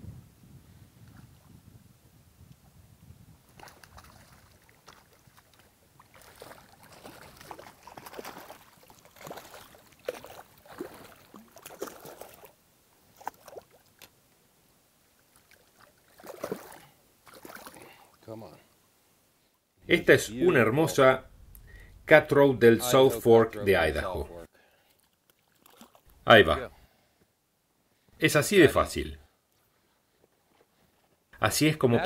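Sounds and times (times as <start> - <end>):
hand sloshing in water: 3.6 - 14.1, 15.3 - 18.0
fish splashing in water: 3.6 - 14.2, 15.2 - 18.1, 24.9 - 26.1.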